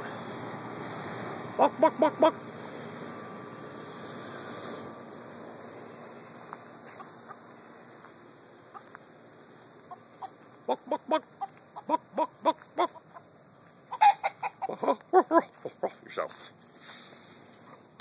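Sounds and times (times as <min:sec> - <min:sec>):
chicken clucking: 0:01.6 - 0:02.4, 0:09.8 - 0:16.0.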